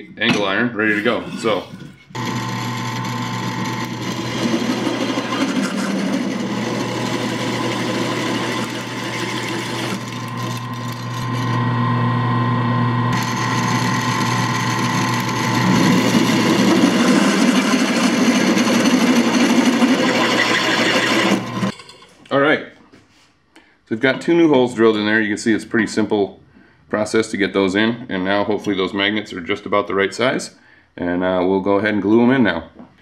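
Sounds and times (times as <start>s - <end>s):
drill bit grinding metal: 1.4s - 11.9s, 13.1s - 21.7s
drill press motor hum: 2.1s - 21.7s.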